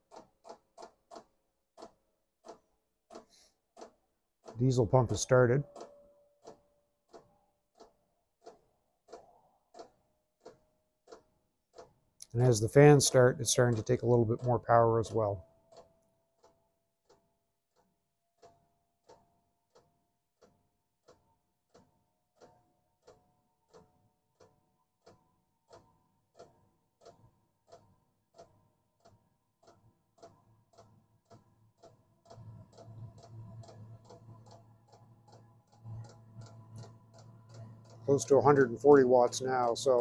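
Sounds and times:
fuel pump ticking: 0:00.0 - 0:15.9, 0:29.1 - 0:40.0.

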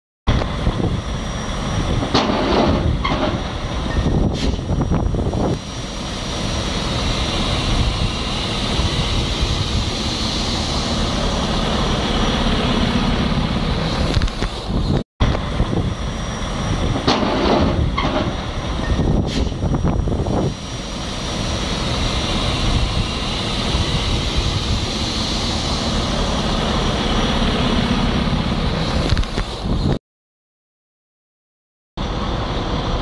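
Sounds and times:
diesel truck engine running: 0:00.3 - 0:30.0, 0:32.0 - 0:33.0
knocks and clanks: 0:02.0 - 0:04.6, 0:16.9 - 0:19.6.

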